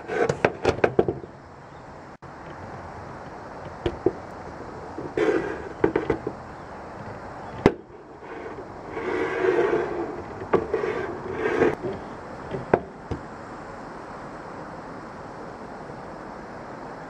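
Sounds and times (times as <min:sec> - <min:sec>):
pole scraping in metal gutter: 0:00.0 - 0:01.2, 0:05.0 - 0:12.8.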